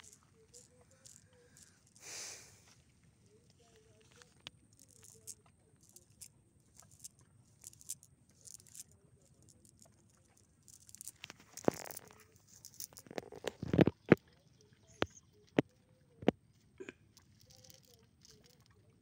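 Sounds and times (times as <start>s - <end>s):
sinkers clicking: 0.0s - 2.2s, 3.3s - 16.3s.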